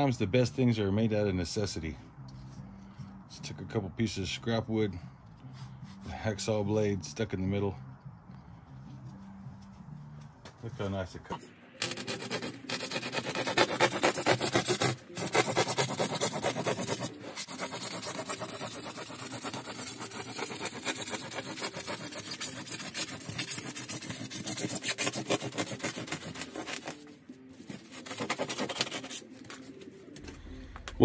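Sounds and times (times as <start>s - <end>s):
hacksaw rasping through foam: 11.8s - 27.1s, 27.7s - 29.3s.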